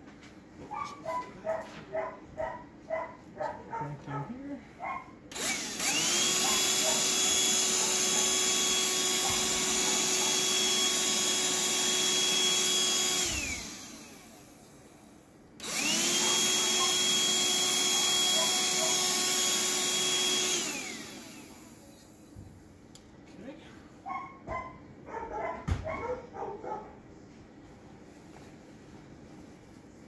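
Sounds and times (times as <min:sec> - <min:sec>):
vacuum running with high whine: 0:05.3 - 0:22.5.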